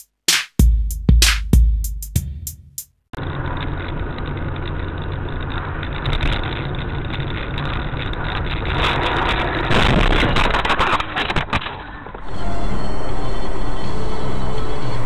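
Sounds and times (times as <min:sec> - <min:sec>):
car engine: 0:03.2 - 0:09.7
road noise: 0:03.2 - 0:15.0.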